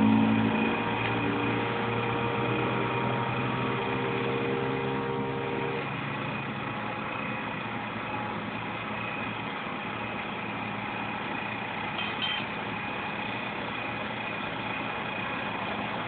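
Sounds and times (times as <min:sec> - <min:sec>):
vehicle engine running: 0:00.0 - 0:16.0.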